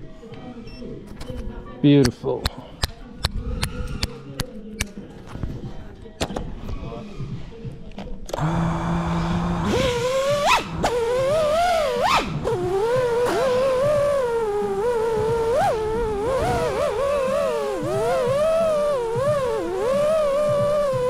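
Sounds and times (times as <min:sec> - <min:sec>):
drone motors whining: 0:08.4 - 0:21.0.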